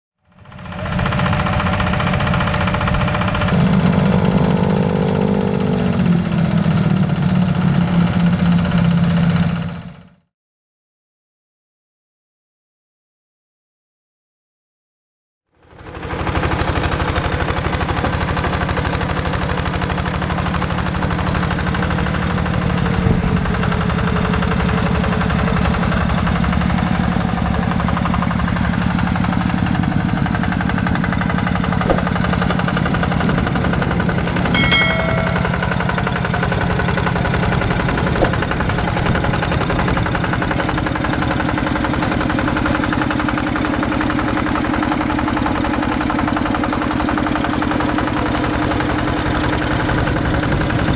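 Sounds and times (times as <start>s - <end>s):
diesel tractor engine running: 0.3s - 10.1s, 15.7s - 50.9s
short high tone: 34.6s - 36.2s.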